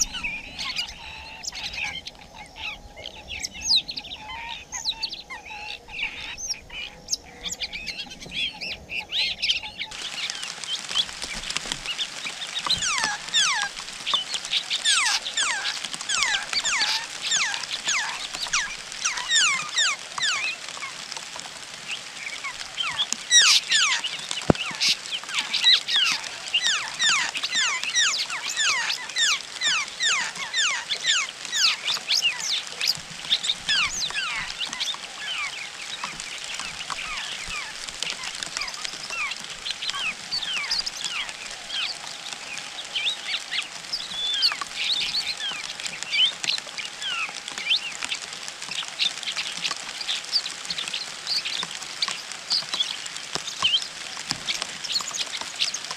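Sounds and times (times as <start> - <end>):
nestlings begging cheeps: 12.6 - 20.9, 22.4 - 48.0.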